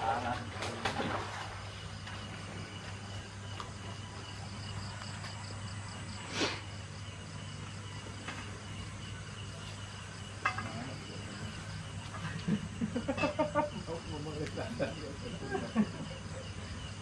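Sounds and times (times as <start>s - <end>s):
insects chirping with pulsing buzz: 0.0s - 17.0s.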